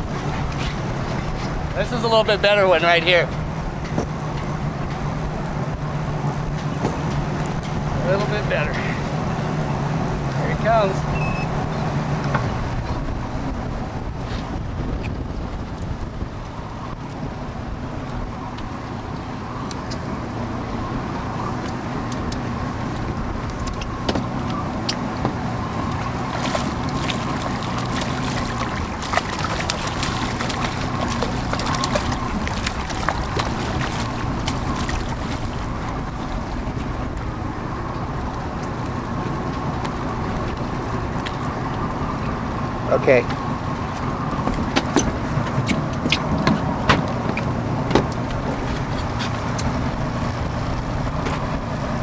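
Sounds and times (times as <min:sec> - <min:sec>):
boat motor running: 0:00.0 - 0:52.0
fish thrashing and splashing: 0:23.0 - 0:37.0.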